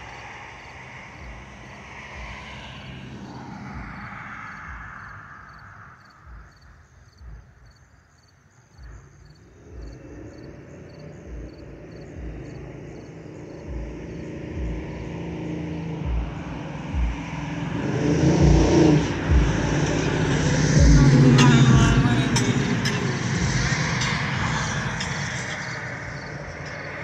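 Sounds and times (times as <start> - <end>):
jet engines at climb power: 0.0 - 5.6, 9.5 - 27.0
low thuds: 11.2 - 12.8, 13.6 - 15.2, 16.0 - 17.5, 18.4 - 22.0.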